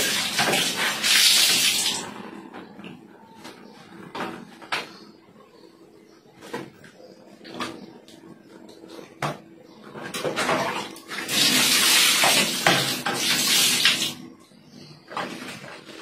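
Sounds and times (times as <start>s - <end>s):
water pouring and splashing: 0.0s - 2.1s, 10.3s - 14.2s.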